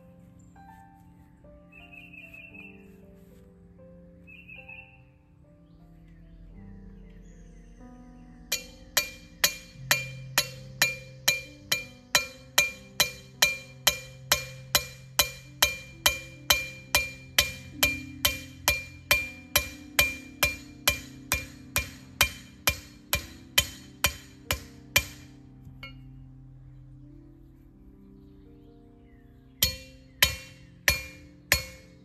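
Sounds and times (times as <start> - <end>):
background music: 0.0 - 32.0
hammer striking metal anchor: 8.5 - 26.1, 29.6 - 32.0.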